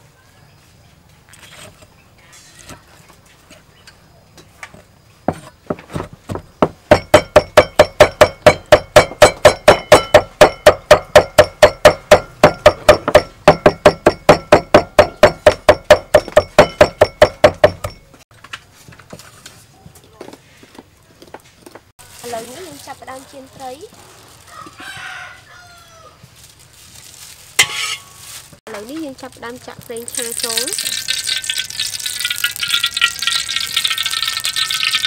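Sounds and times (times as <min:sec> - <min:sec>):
cleaver chopping on wooden block: 0:05.3 - 0:18.0.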